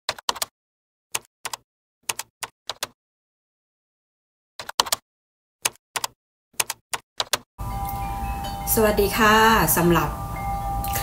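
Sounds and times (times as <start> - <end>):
keyboard keystroke clicks: 5.7 - 7.4.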